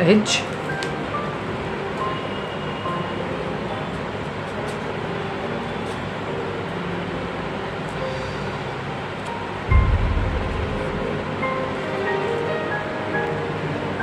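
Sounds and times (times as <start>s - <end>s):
faint background music: 0.0s - 14.0s
steady rushing noise: 9.7s - 11.9s.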